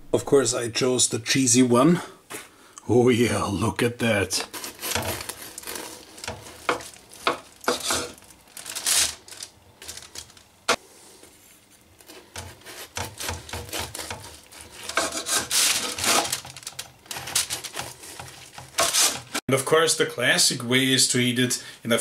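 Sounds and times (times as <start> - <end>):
knife sawing through loaf: 4.4 - 8.2, 12.0 - 16.5, 17.1 - 19.4.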